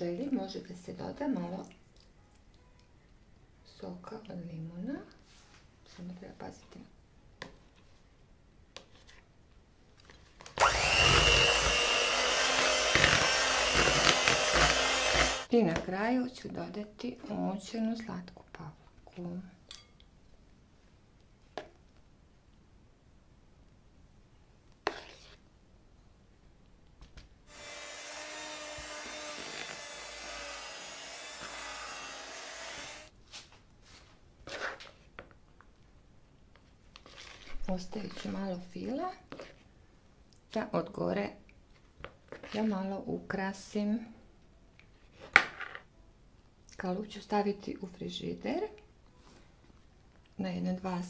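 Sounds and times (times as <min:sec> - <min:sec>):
electric hand mixer running: 0:10.6 - 0:15.5, 0:27.5 - 0:33.1.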